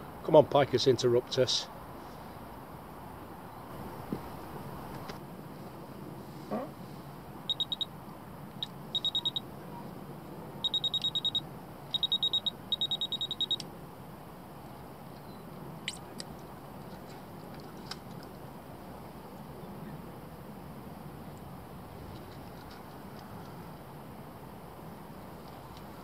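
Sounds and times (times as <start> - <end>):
bite alarm high beeps: 7.5 - 7.9, 8.9 - 9.4, 10.6 - 13.6.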